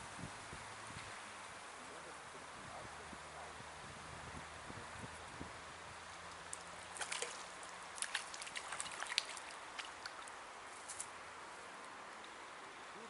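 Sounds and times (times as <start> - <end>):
light splashy ticks: 6.2 - 11.1.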